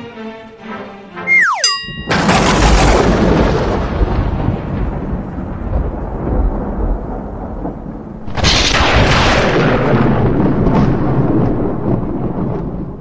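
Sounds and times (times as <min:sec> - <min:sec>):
loud crash: 0:08.3 - 0:10.1.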